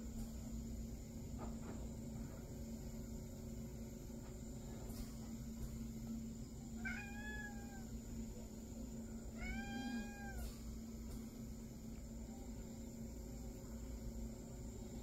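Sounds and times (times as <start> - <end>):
cat meowing: 6.8 - 7.9, 9.4 - 10.5.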